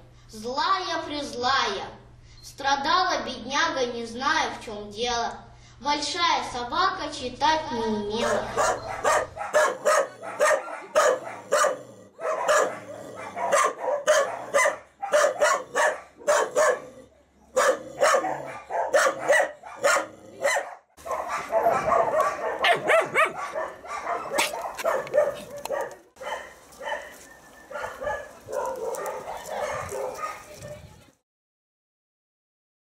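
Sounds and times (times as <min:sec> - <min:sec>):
dogs barking: 0:08.2 - 0:30.9.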